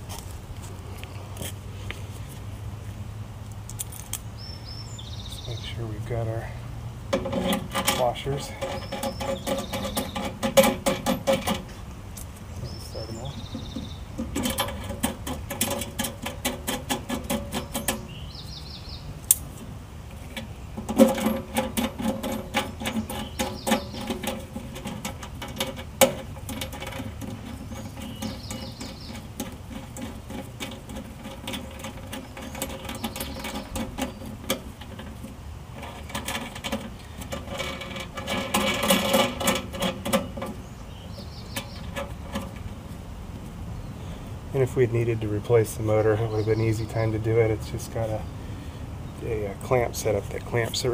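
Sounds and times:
metal clicking and rattling: 7.1s - 43.6s.

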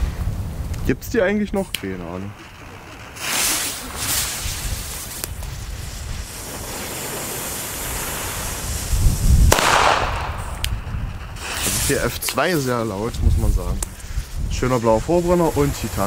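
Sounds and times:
firecracker fuse hissing: 0.0s - 16.0s
firecracker bang: 1.6s - 12.6s.

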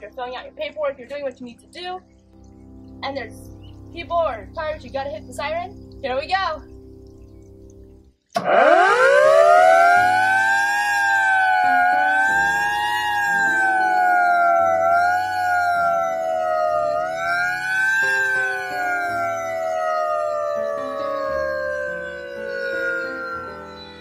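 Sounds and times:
fire engine siren wailing: 8.4s - 24.0s.

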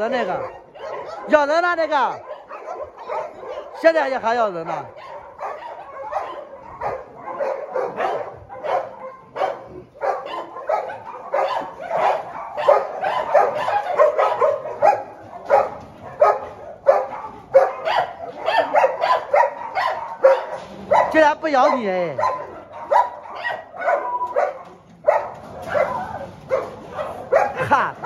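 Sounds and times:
dogs barking together: 0.0s - 28.0s.

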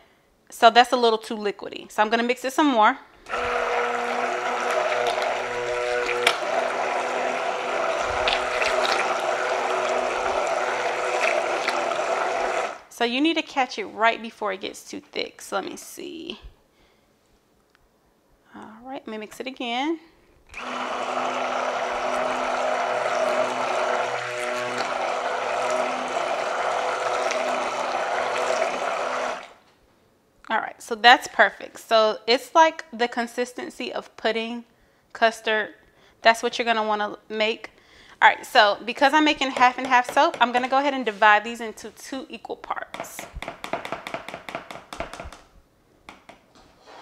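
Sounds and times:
electric hand mixer running: 3.3s - 12.9s, 20.5s - 29.6s.

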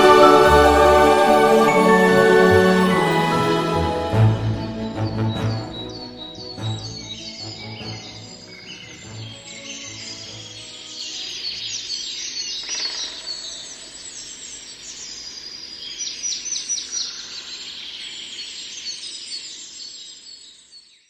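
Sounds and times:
songbirds chirping and trilling: 4.3s - 21.0s.

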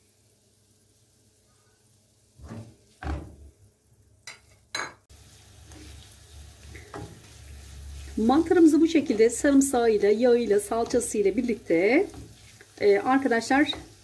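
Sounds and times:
mushrooms sizzling: 0.0s - 14.0s
wooden spoon scraping frying pan: 2.4s - 3.0s, 5.6s - 14.0s.

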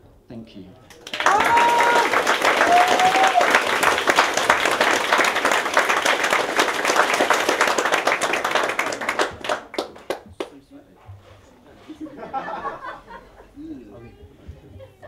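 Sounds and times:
audience applauding: 0.9s - 10.6s.

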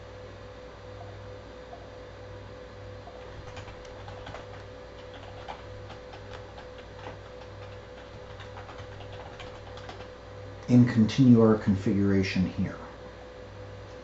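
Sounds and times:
steady electrical hum: 0.0s - 14.0s
computer keyboard keys clicking: 3.1s - 10.1s.

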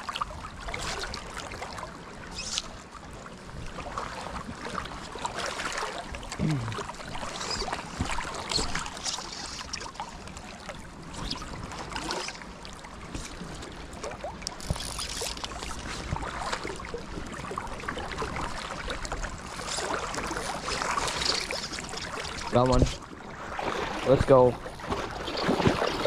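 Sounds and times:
creek water flowing over stones: 17.4s - 23.0s.

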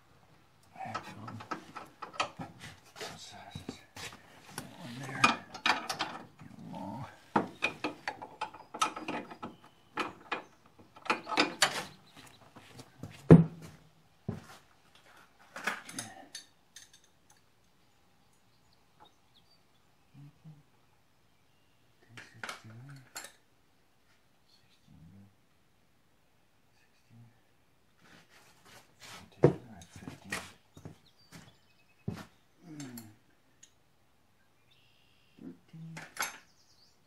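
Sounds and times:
metal clicks and clanks: 0.6s - 2.4s, 5.2s - 6.5s, 7.3s - 12.0s.

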